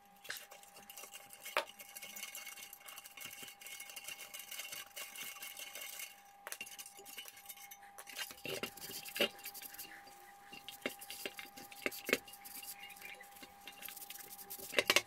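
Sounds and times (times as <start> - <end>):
steady faint tone: 0.0 - 15.0
small metal parts clicking: 0.2 - 9.8.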